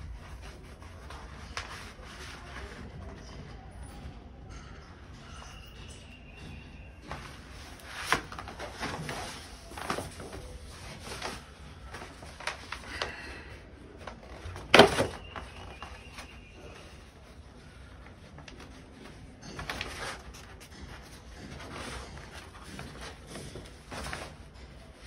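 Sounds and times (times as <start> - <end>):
plastic sheet rustling: 7.2 - 25.0.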